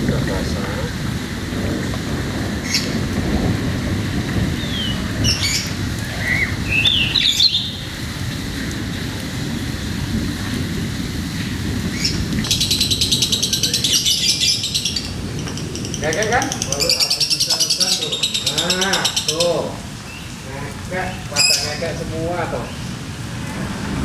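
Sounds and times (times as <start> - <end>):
birds chirping and chattering: 0.0 - 10.1, 11.6 - 23.0
steady rain: 0.0 - 24.0.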